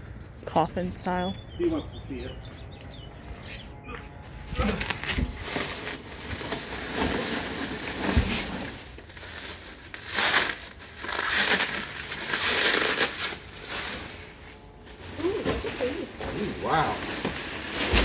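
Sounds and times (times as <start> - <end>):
plastic wrapping crinkling: 4.6 - 14.3, 15.0 - 18.0.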